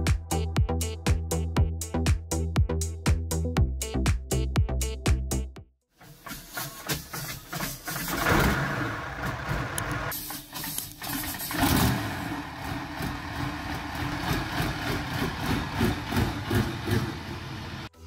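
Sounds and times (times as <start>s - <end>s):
diesel engine running rough: 6.5s - 10.1s, 11.0s - 17.9s.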